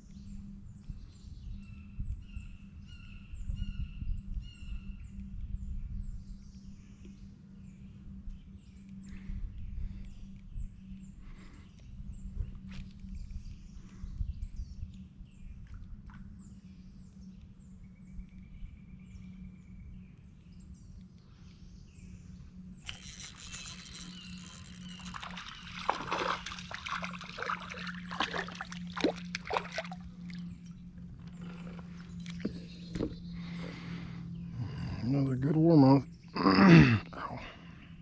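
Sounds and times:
steady low hum: 0.0s - 38.0s
water splashing: 23.2s - 33.1s.

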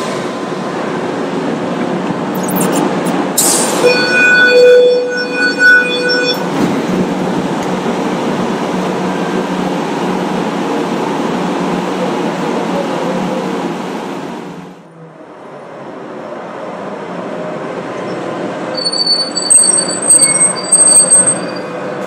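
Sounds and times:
tram rumbling on rails: 0.0s - 22.0s
high squeal with overtones: 2.4s - 7.0s, 18.8s - 21.9s.

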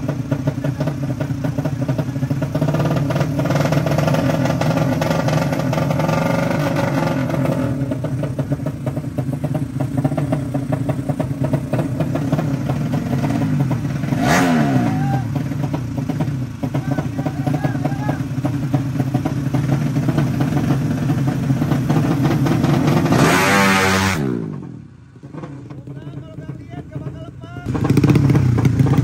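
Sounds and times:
motorcycle engines revving: 0.0s - 29.0s.

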